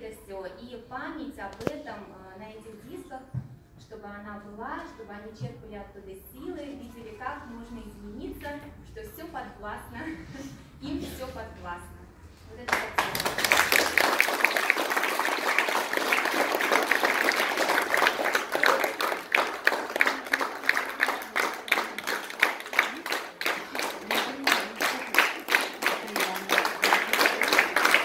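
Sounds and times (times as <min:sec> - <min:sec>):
audience applauding: 0:12.7 - 0:28.0.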